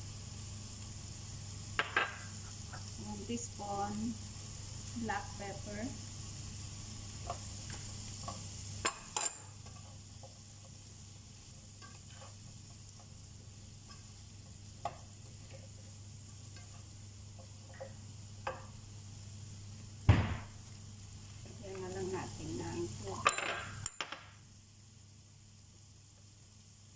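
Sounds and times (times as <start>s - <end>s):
vegetables sizzling in butter: 0.0s - 26.9s
spatula scraping pan: 11.8s - 12.8s.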